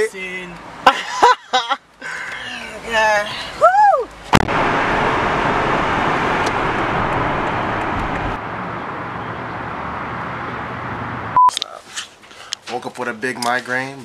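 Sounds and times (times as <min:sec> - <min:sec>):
outdoor traffic: 0:00.0 - 0:14.0
road and engine noise in car: 0:00.0 - 0:14.0
wind noise: 0:04.3 - 0:08.4
high beep: 0:11.4 - 0:11.6.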